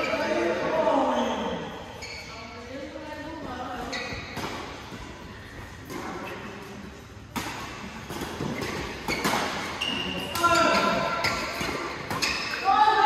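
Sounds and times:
rackets hitting shuttlecock: 7.3s - 12.7s.

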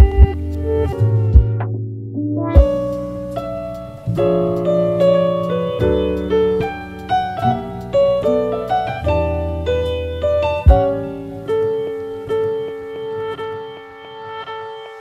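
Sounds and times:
piano music with bass: 0.0s - 15.0s
deep thump: 10.7s - 11.0s.

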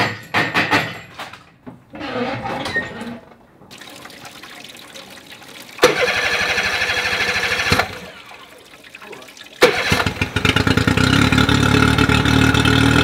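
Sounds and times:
water splashing into plastic tray: 3.7s - 11.0s
outboard motor starting and running: 5.8s - 13.0s.

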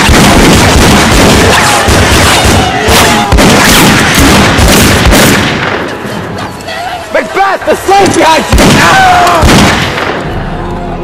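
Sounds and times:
rapid gunfire: 0.0s - 5.8s, 8.5s - 10.2s.

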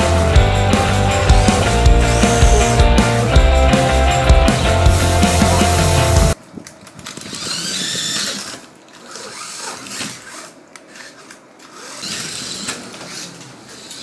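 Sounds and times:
music: 0.0s - 6.4s
rc car electric motors whining: 1.1s - 3.0s, 7.2s - 14.0s.

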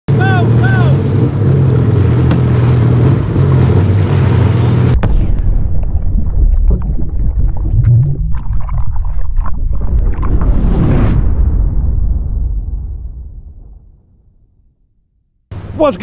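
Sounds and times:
watercraft engine over churning water: 0.1s - 5.0s
deep rumble with crackles: 0.2s - 15.5s.

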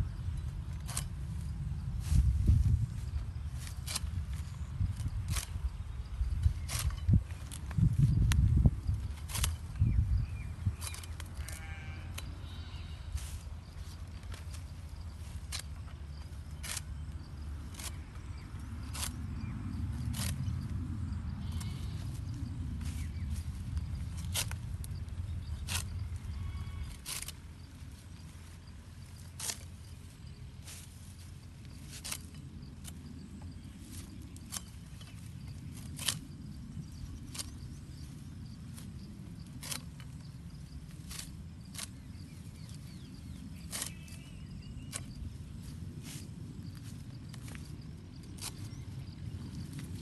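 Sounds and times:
steady low rumble: 0.0s - 50.0s
stalks snapping as cut: 0.7s - 1.2s, 3.6s - 5.6s, 6.5s - 8.5s, 9.2s - 9.8s, 10.8s - 12.3s, 15.2s - 15.8s, 16.5s - 17.0s, 17.7s - 18.1s, 18.8s - 19.2s, 20.0s - 20.5s, 24.1s - 25.0s, 25.6s - 26.0s, 26.8s - 27.5s, 29.2s - 29.8s, 31.9s - 33.0s, 33.9s - 35.2s, 35.8s - 36.3s, 37.2s - 37.6s, 39.5s - 40.2s, 40.9s - 42.9s, 43.6s - 45.2s, 48.3s - 48.8s.

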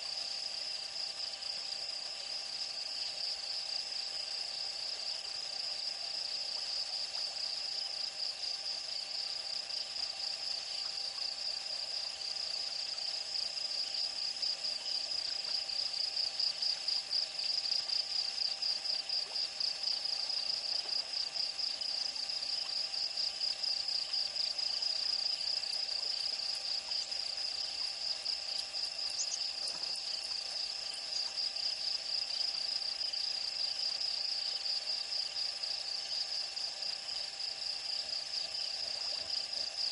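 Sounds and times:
high-pitched insect trill: 0.0s - 39.9s
low steady insect tones: 0.0s - 39.9s.

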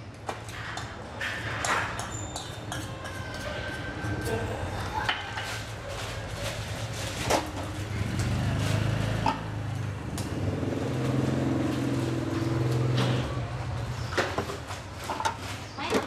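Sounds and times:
tongs clinking on metal trays: 0.7s - 5.7s
vehicle engine humming: 7.4s - 14.2s.

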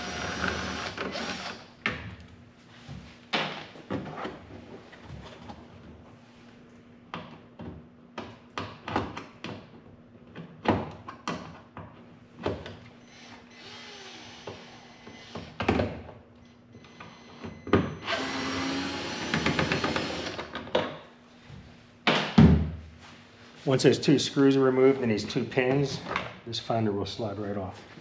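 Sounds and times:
power driver whirring: 13.1s - 15.6s, 18.0s - 20.5s.

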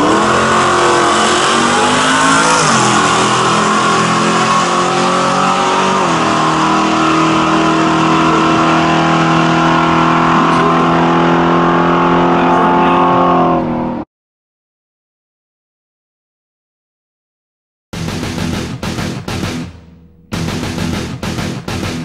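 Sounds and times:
truck engine at full throttle: 0.0s - 14.0s, 18.0s - 22.0s.

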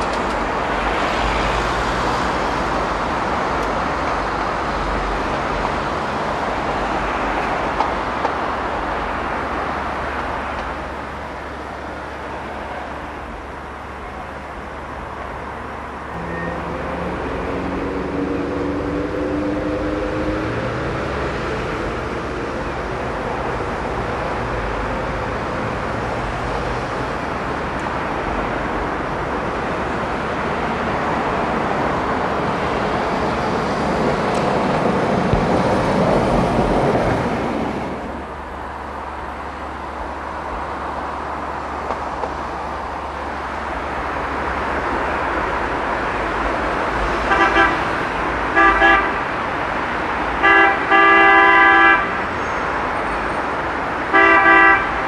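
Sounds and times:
street traffic: 0.0s - 55.0s
vehicle horn honking: 16.2s - 17.8s, 47.3s - 47.8s, 48.5s - 49.2s, 50.4s - 52.2s, 54.1s - 55.0s.

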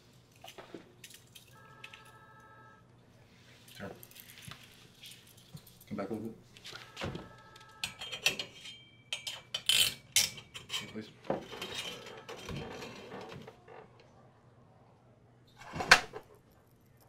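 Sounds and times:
soft noisy rustle: 2.9s - 7.5s.

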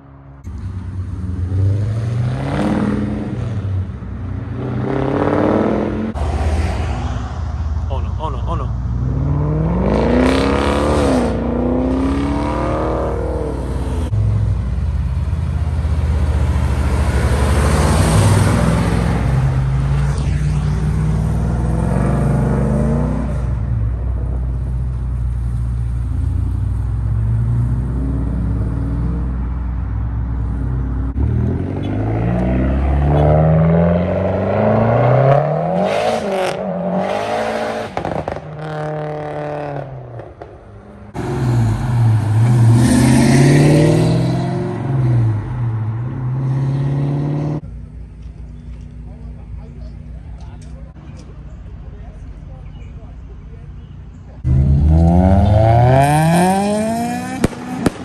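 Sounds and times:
car engine revving: 8.3s - 29.7s, 30.4s - 47.8s, 54.4s - 58.0s.

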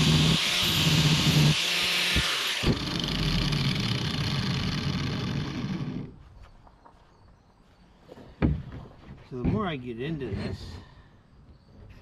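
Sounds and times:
angle grinder running without load: 0.0s - 6.2s.

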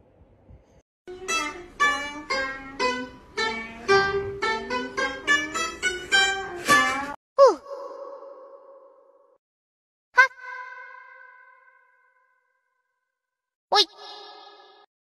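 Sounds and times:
plucked lute melody: 1.1s - 7.2s
sliding lute tone: 1.1s - 7.2s.

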